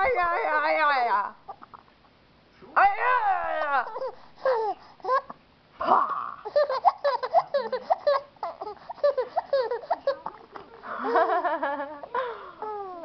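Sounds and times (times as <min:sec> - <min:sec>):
baby laughing: 0:03.8 - 0:05.4, 0:06.4 - 0:13.0.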